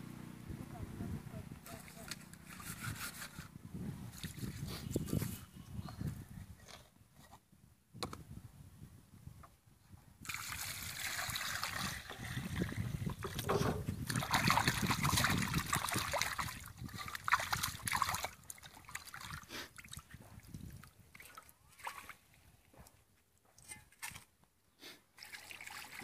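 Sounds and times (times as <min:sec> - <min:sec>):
water splashing and sloshing: 0:10.2 - 0:22.7, 0:23.5 - 0:24.4, 0:25.1 - 0:26.0.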